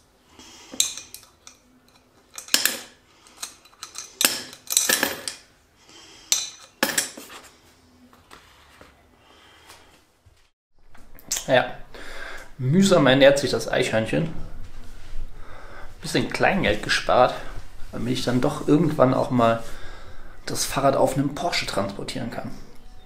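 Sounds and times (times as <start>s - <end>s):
coins clinking into coin bank: 0.8s - 5.5s.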